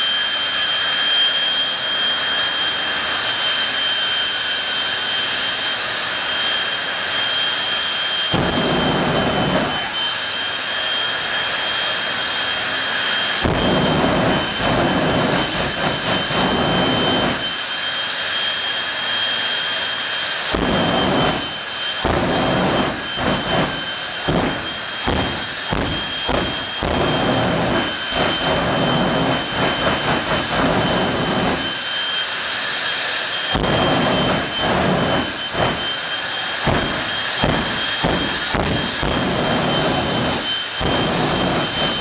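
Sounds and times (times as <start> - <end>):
high-pitched turbine whine: 0.0 - 42.0.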